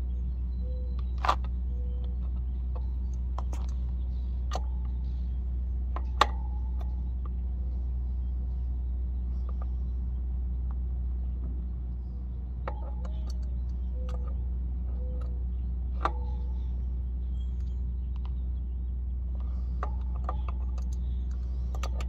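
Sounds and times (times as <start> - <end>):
low rumble: 0.0 - 22.0
wrench clicking on axle nut: 12.6 - 14.4, 19.4 - 22.0.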